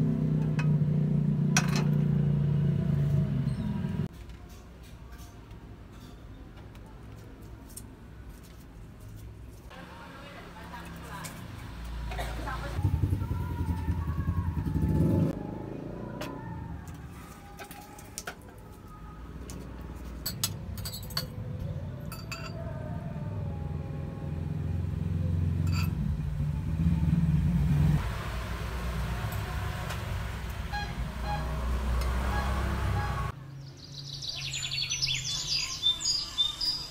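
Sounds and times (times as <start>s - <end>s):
cutlery clinking on glass bowl: 22.1s - 22.6s.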